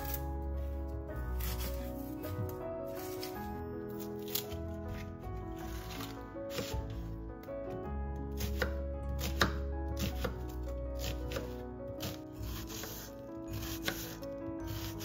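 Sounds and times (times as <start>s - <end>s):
background music: 0.0s - 15.0s
knife chopping on a cutting board: 1.4s - 3.3s, 5.6s - 7.1s, 8.3s - 15.0s.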